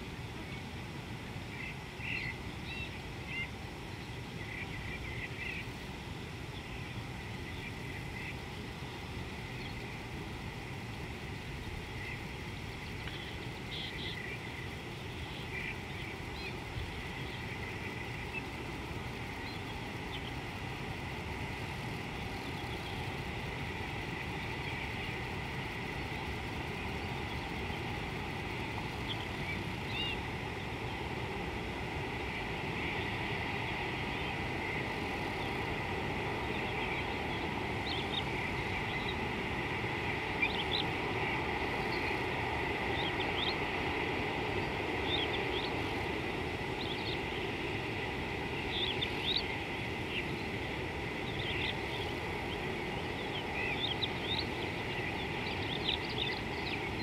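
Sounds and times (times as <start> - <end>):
birds chirping: 11.6 - 57.0.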